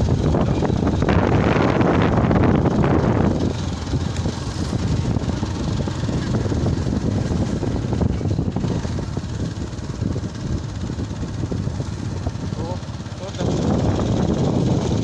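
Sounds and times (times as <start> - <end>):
motorcycle engine running: 0.0 - 15.0
wind buffeting microphone: 0.0 - 15.0.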